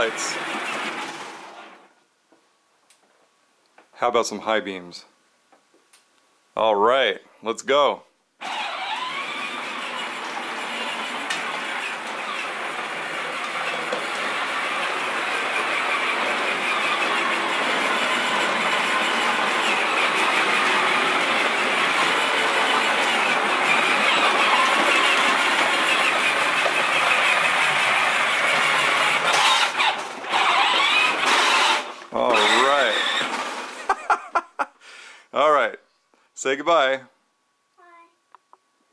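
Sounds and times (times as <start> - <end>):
toy tractor rattling on concrete: 8.4 - 33.9.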